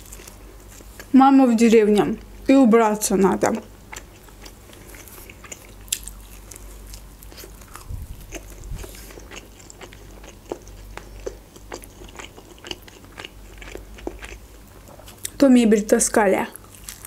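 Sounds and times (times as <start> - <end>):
close-up chewing with crunches: 0.0 - 1.1, 3.7 - 15.4, 16.6 - 17.0.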